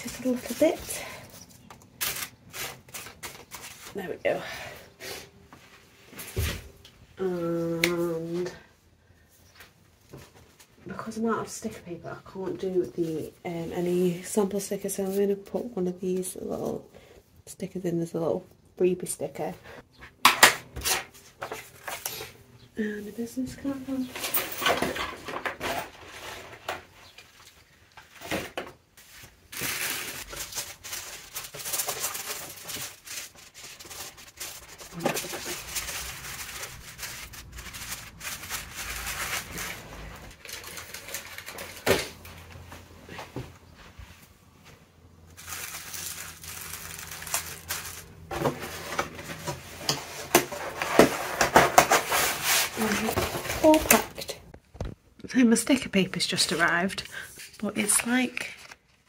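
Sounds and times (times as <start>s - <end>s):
tissue paper rustling: 29.0s - 41.8s, 45.4s - 49.3s.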